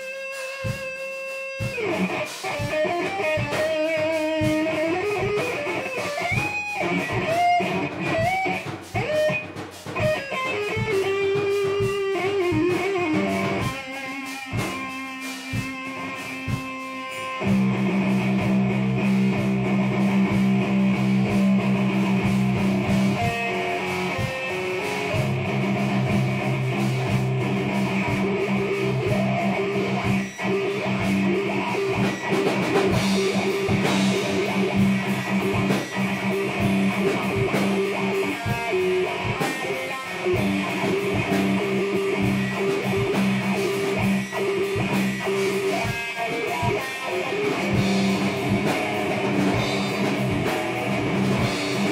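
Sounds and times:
drum kit: 0:00.0 - 0:51.9
electric guitar: 0:00.0 - 0:51.9.

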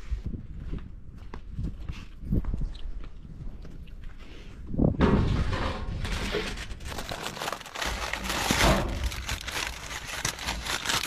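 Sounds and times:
aluminium foil crinkling: 0:06.2 - 0:11.0.

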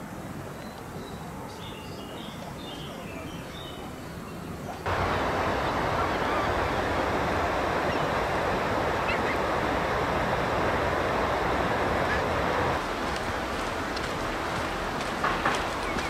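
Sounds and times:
river water rushing: 0:04.8 - 0:16.0.

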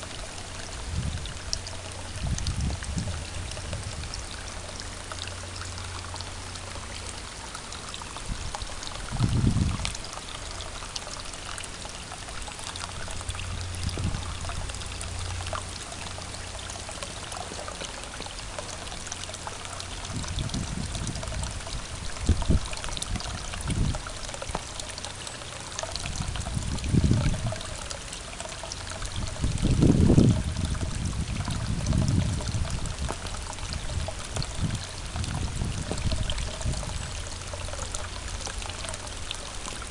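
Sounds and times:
water pouring into pond tub: 0:00.0 - 0:39.9
low rumbles: 0:12.8 - 0:17.4.

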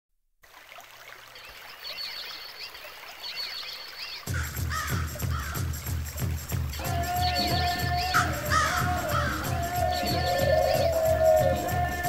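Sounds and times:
jungle ambience hiss: 0:01.2 - 0:12.0
bird calls chirping: 0:01.3 - 0:05.7, 0:06.7 - 0:12.0
steady drum beat: 0:04.3 - 0:12.0.

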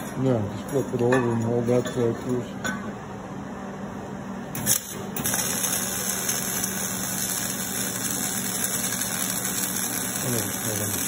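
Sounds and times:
welding arc crackling: 0:04.5 - 0:11.0.

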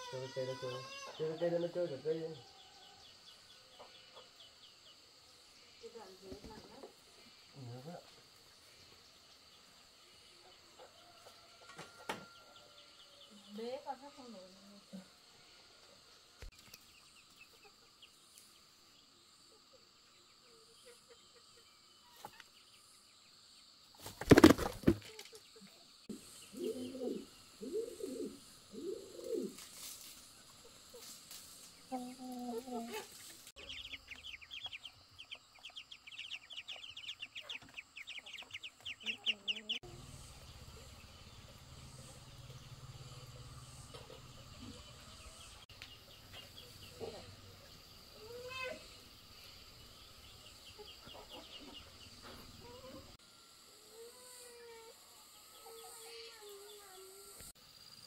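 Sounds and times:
chicken wings flapping: 0:24.0 - 0:25.4.

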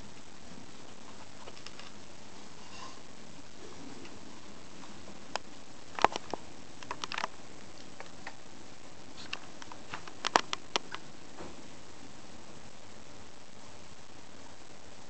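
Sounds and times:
rats clicking and tapping on tiles: 0:05.3 - 0:08.4, 0:09.2 - 0:11.0.

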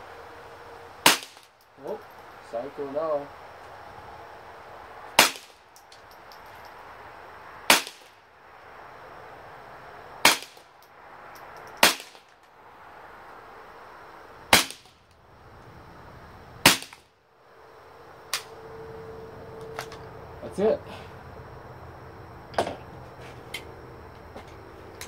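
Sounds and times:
rifle shots: 0:05.2 - 0:05.6, 0:07.7 - 0:08.1, 0:10.2 - 0:10.6, 0:11.8 - 0:12.2, 0:14.5 - 0:14.9, 0:16.6 - 0:17.0.

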